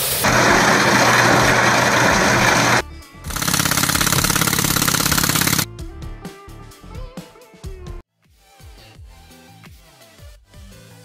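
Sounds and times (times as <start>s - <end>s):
heavy construction machinery: 0.2s - 5.7s.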